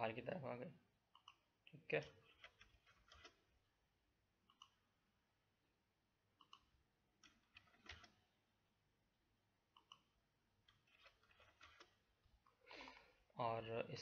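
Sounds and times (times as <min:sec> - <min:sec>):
computer mouse clicks: 0:01.1 - 0:01.4, 0:02.2 - 0:03.4, 0:04.4 - 0:04.8, 0:06.4 - 0:08.2, 0:09.7 - 0:11.9.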